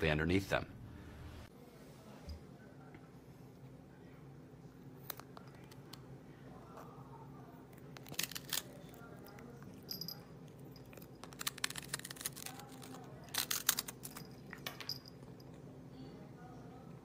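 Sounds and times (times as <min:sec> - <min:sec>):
cat crunching dry cracker: 0:07.8 - 0:09.8, 0:10.7 - 0:14.6.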